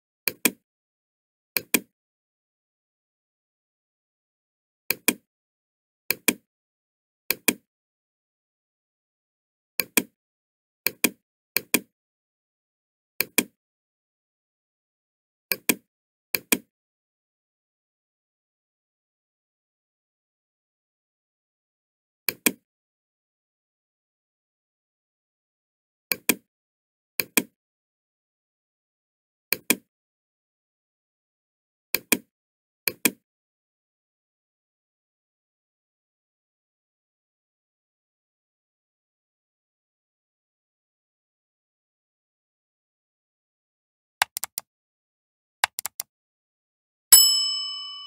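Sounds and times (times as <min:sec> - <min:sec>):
computer mouse button clicks: 0:44.2 - 0:44.6, 0:45.6 - 0:46.1.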